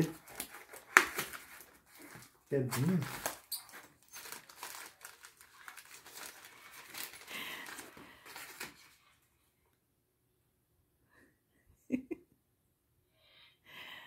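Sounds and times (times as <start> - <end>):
packaging crinkling: 0.0 - 9.1.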